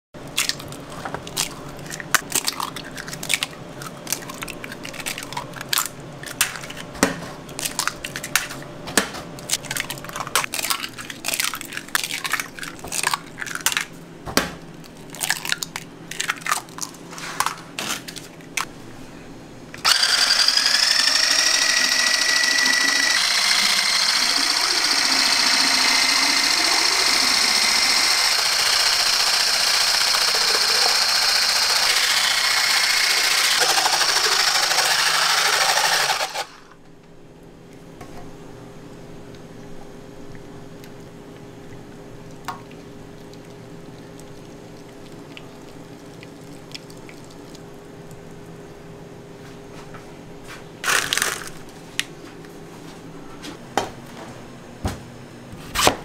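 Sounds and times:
electric mixer whining: 19.8s - 36.8s.

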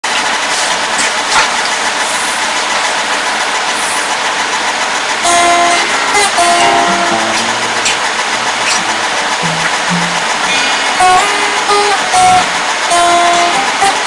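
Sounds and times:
acoustic guitar picked notes: 5.2s - 14.0s.

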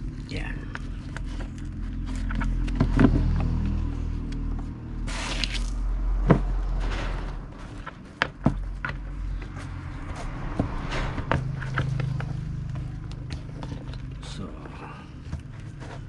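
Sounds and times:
steady low hum: 0.0s - 16.0s
tape pulled off roll: 5.1s - 7.3s.

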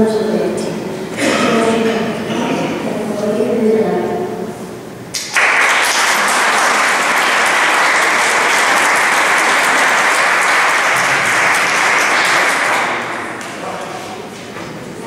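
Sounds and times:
audience applauding: 5.2s - 13.7s.

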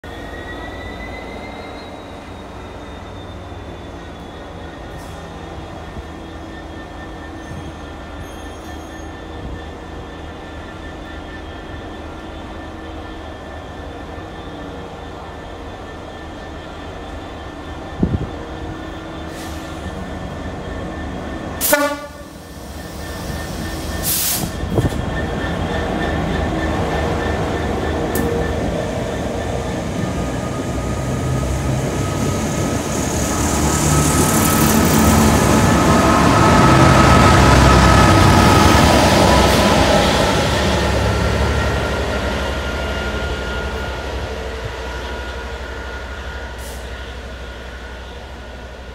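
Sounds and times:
diesel locomotive engine: 0.0s - 48.9s
train wheels rumbling: 0.0s - 48.9s
train horn blast: 21.6s - 22.4s.

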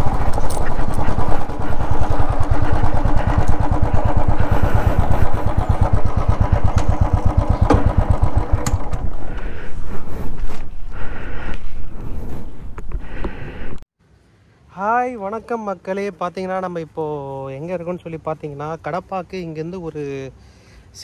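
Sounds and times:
motorcycle engine running: 0.0s - 11.5s.

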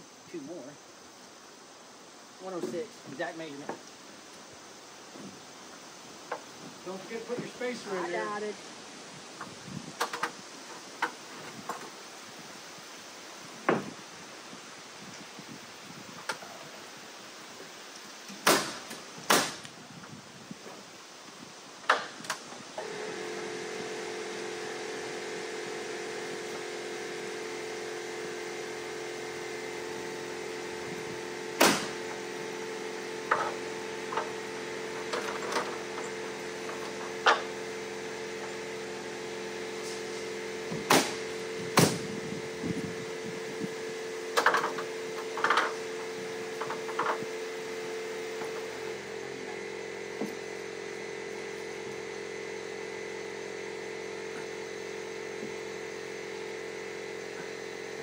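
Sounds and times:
steady machine hum: 18.6s - 58.0s.

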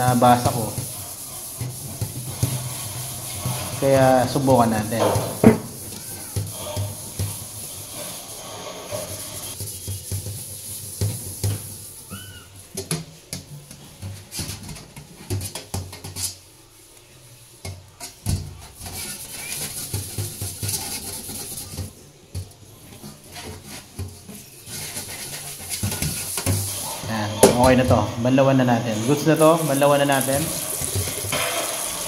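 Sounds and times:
scrubbing wok with sponge: 0.0s - 32.0s
pan knocking against sink: 1.6s - 7.4s.

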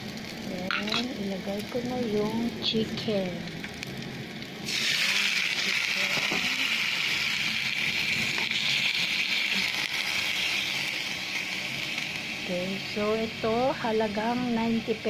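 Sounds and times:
chicken sizzling in hot oil: 0.0s - 15.0s.

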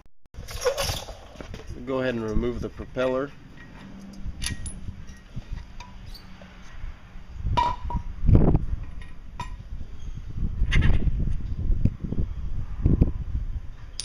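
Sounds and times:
metal clinks: 3.5s - 5.9s.

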